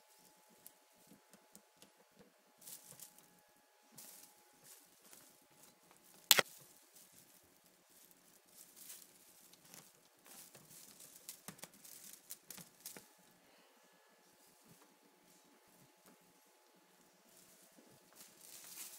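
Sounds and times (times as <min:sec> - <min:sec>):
paws rustling and scratching: 0:06.6 - 0:13.2, 0:17.3 - 0:18.9.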